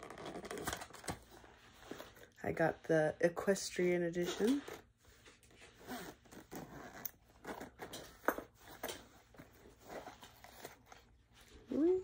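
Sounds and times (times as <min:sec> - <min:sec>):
zipper being pulled open: 0:05.7 - 0:08.1.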